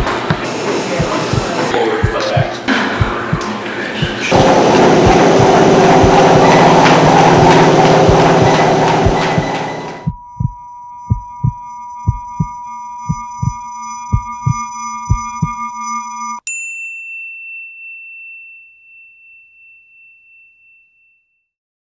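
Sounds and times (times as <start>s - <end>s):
electronic music with low thumps: 0.0s - 16.4s
high ringing tone: 4.3s - 21.5s.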